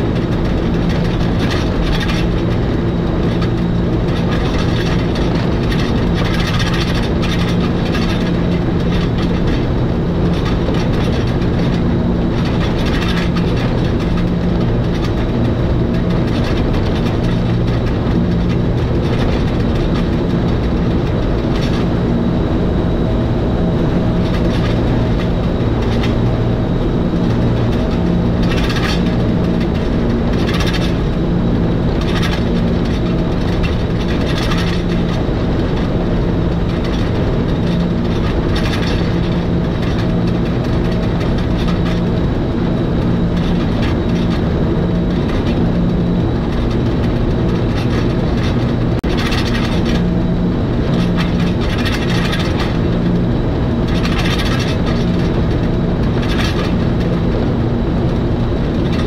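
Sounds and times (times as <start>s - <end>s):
wheel and track clicks: 0.0s - 22.2s, 27.1s - 50.1s
train motors and gearing hum: 0.0s - 59.0s.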